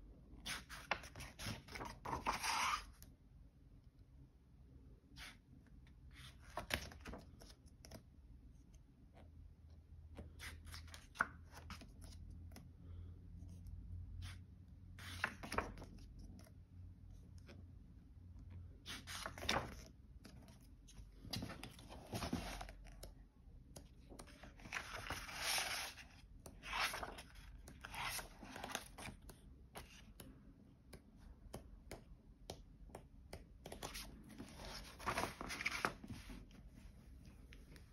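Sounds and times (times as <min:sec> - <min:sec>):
book pages rustling: 0:00.5 - 0:02.9, 0:15.0 - 0:16.5, 0:18.9 - 0:23.1, 0:23.7 - 0:30.3, 0:33.6 - 0:37.9.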